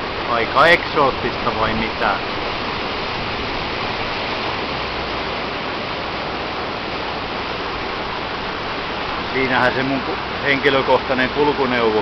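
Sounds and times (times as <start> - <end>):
water and wind rushing: 0.0 - 12.0.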